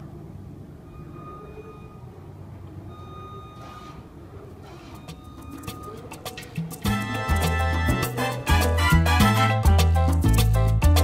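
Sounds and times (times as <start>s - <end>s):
lift motion alarm beeping: 0.7s - 6.9s.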